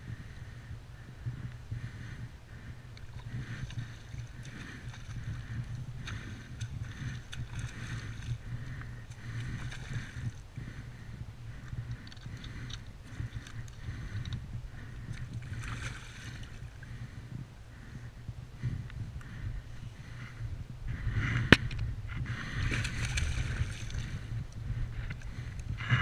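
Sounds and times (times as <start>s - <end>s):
low wind rumble: 0.0s - 26.0s
fish splashing and thrashing: 3.0s - 10.4s, 11.8s - 17.0s, 22.4s - 24.3s
water slapping against hull: 3.1s - 10.4s, 11.9s - 16.8s, 22.3s - 24.3s.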